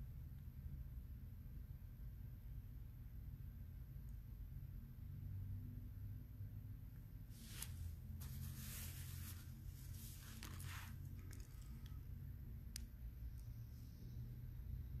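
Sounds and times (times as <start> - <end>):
faint rustling: 7.3 - 12.1.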